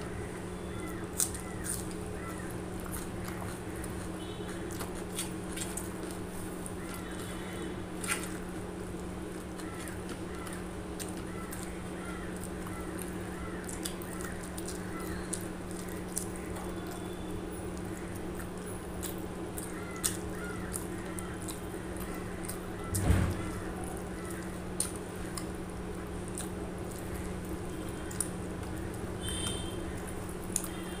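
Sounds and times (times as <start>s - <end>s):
chewing: 0.0s - 31.0s
steady low hum: 0.0s - 31.0s.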